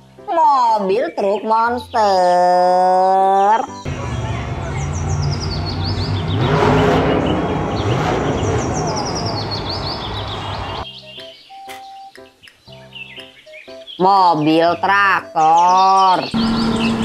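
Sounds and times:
high bird chirps: 3.4s - 14.6s, 15.2s - 17.0s
crowd noise: 3.9s - 5.8s
truck engine revving hard: 3.9s - 10.8s, 16.4s - 17.0s.

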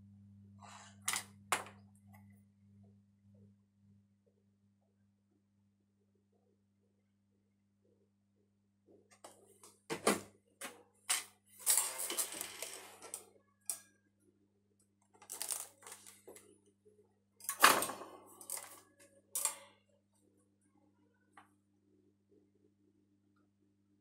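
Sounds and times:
low electrical hum: 0.0s - 24.0s
tools clicking and rustling: 15.2s - 16.4s, 17.4s - 19.7s.

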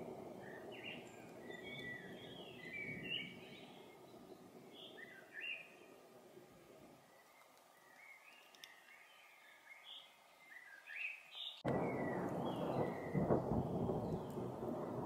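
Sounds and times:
thunder rumbling: 0.0s - 4.8s, 11.6s - 15.0s
bird chirping: 0.3s - 6.0s, 7.0s - 15.0s.

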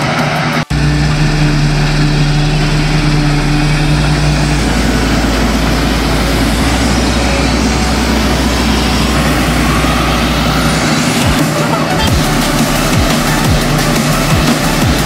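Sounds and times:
combine harvester running: 0.0s - 15.0s.

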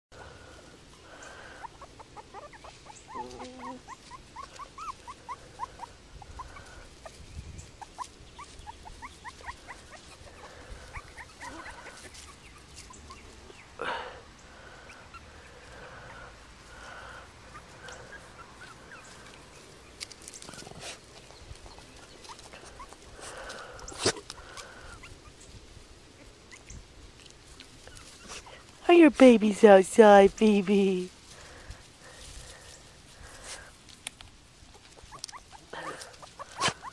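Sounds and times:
puppies whimpering and squeaking: 1.2s - 13.6s, 17.4s - 25.6s, 26.2s - 26.9s, 27.6s - 28.7s, 34.6s - 36.9s.

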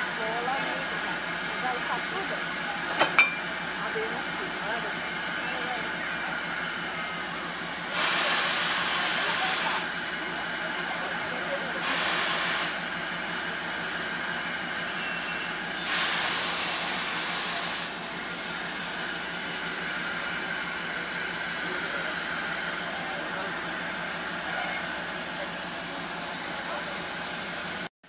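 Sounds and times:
loud blast of escaping steam: 7.9s - 9.9s, 11.8s - 12.9s, 15.8s - 18.1s
steam hissing: 7.9s - 13.0s, 15.6s - 27.9s.

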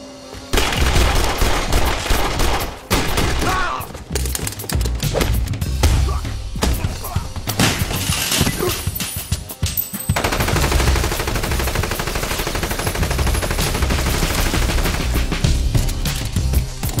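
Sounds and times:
background music: 0.0s - 17.0s
automatic gunfire: 0.6s - 3.6s, 10.2s - 15.3s.

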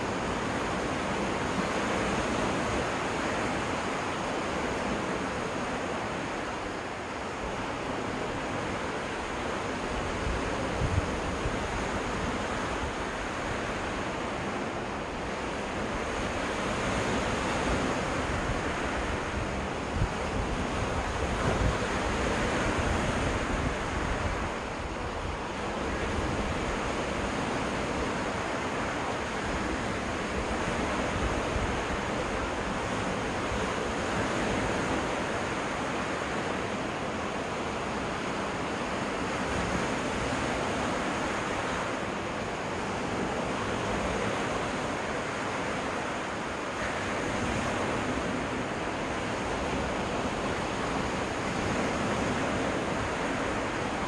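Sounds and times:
waves washing ashore: 0.0s - 54.0s
wind rumbling on microphone: 7.4s - 36.7s.

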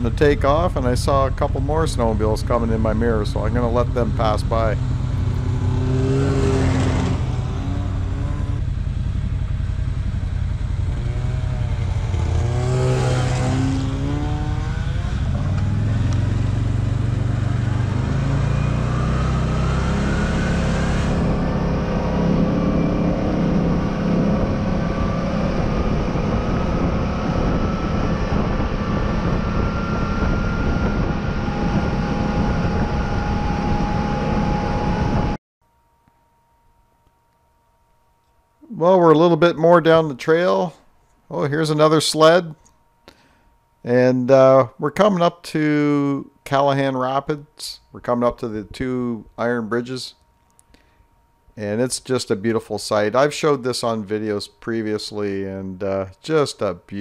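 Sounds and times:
side-by-side engine running: 0.0s - 35.4s
snowmobiles passing: 0.0s - 35.4s.

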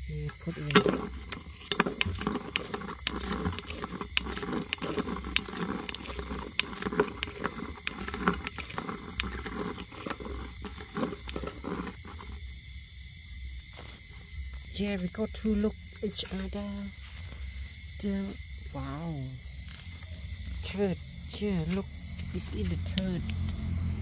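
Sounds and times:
crickets trilling: 0.0s - 24.0s
close rustling and crackling: 0.3s - 12.4s.

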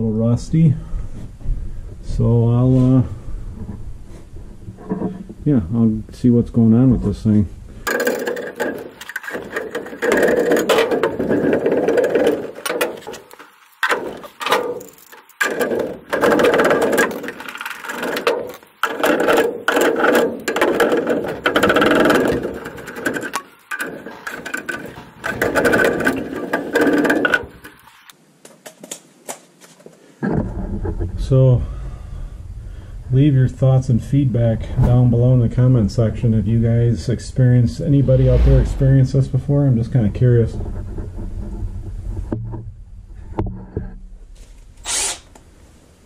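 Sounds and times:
hand tool rasping ratchet: 7.9s - 27.8s.

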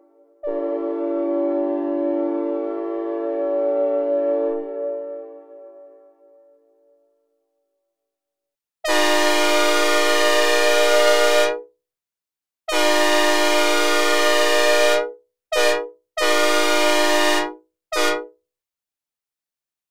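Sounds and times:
locomotive air horn blasts: 0.4s - 4.9s, 8.8s - 11.7s, 12.7s - 18.4s.

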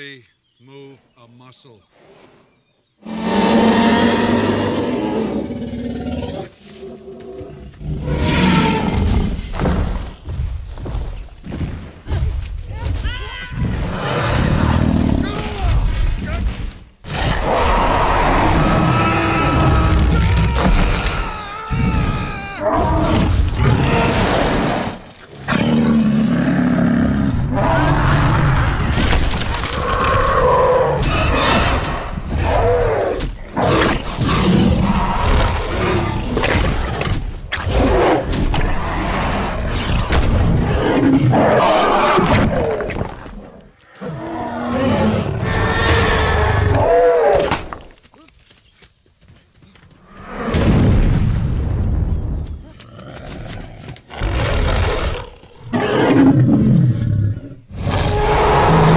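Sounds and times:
dinosaur roars and growls: 3.0s - 9.7s, 13.6s - 15.8s, 17.1s - 29.0s, 29.6s - 47.6s, 52.8s - 58.9s
dinosaur roaring: 54.2s - 58.9s.

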